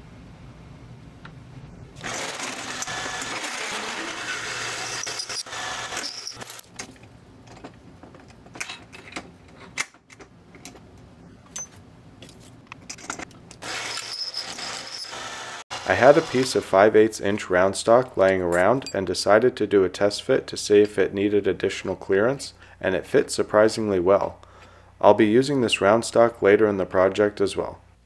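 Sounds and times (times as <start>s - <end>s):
lathe motor humming: 2.0s - 6.1s
drill cutting steel hiss: 2.0s - 6.5s, 13.6s - 16.7s.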